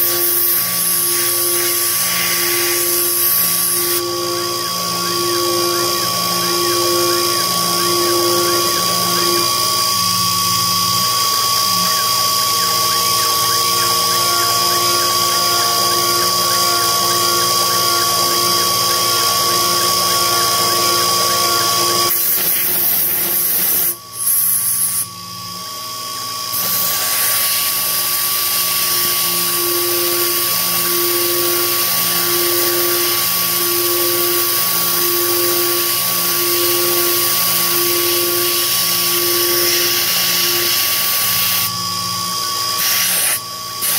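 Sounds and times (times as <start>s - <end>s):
mill spindle high-pitched whine: 0.0s - 43.9s
coolant hiss: 26.5s - 41.8s.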